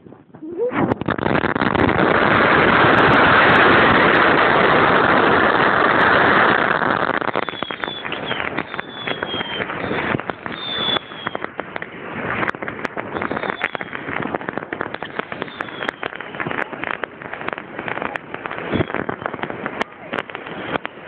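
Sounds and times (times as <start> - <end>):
firework crackles and pops: 0.0 - 21.0
firework rushing hiss: 0.0 - 21.0
high falling whistles: 7.3 - 11.4.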